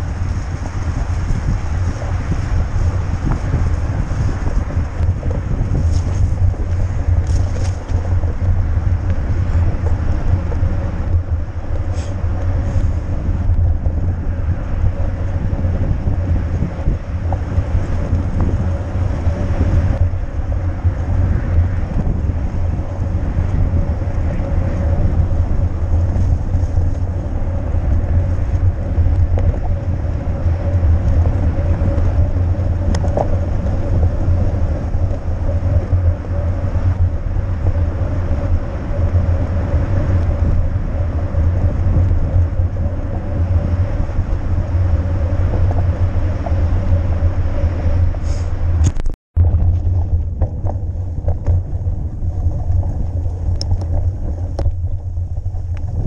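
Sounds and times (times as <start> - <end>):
bike tyre noise: 0.0 - 56.0
wind rumble on microphone: 0.0 - 56.0.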